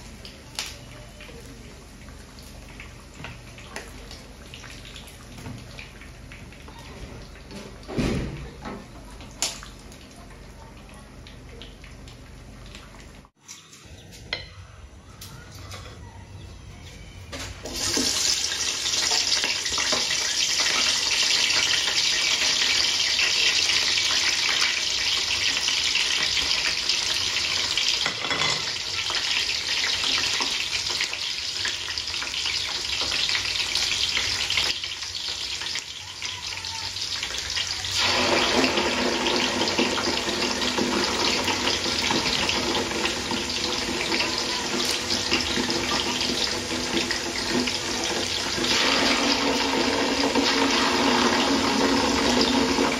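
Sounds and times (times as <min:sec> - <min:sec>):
onions sizzling in hot oil: 0:17.6 - 0:52.9.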